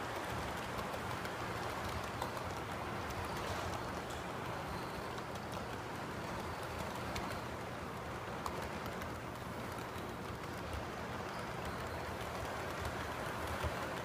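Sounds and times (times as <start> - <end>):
model train wheels rolling on rails: 0.0 - 14.0
small irregular clicks: 0.0 - 14.0.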